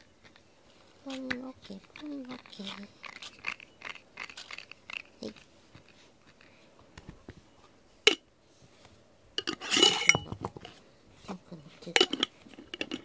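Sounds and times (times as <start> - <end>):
glass clinking and rattling: 9.4 - 10.7.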